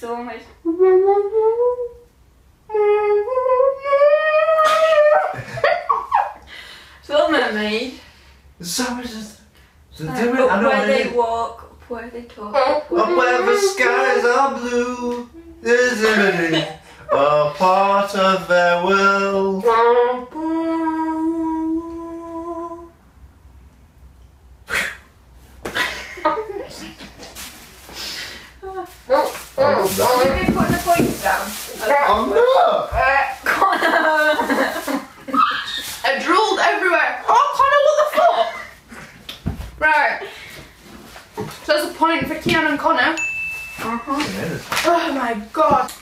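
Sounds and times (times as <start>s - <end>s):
high voice humming: 0.6s - 2.1s, 2.7s - 5.4s, 12.5s - 16.2s, 19.6s - 23.1s
person singing: 2.7s - 5.3s, 12.6s - 16.5s, 17.1s - 23.0s
person laughing: 4.5s - 6.4s, 15.8s - 17.0s.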